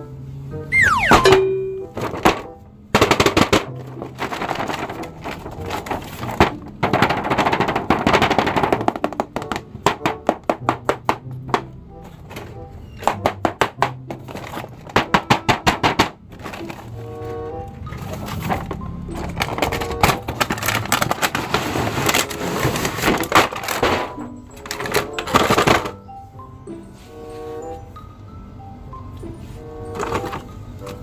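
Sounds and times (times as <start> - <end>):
faint background music: 0.0 - 31.0
cardboard toy box crackling: 3.2 - 9.6, 14.1 - 15.4, 16.3 - 26.0, 29.9 - 31.0.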